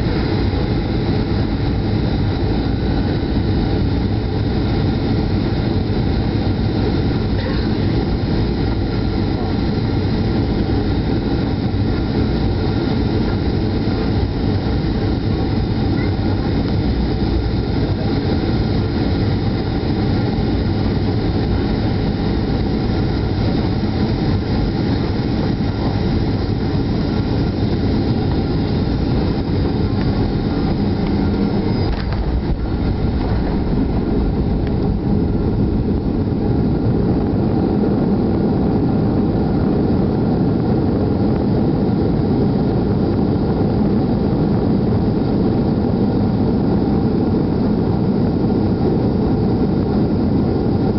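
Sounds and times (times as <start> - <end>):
plane touchdown on runway: 0.0 - 40.2
rushing air: 0.0 - 42.3
heavy low rumble of jet rolling: 0.0 - 50.9
jet engine rumble: 0.0 - 50.9.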